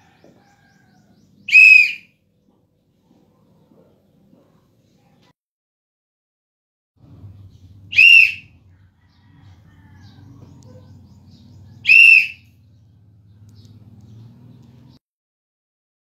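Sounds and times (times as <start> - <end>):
referee's whistle blasts: 8.0 - 8.4.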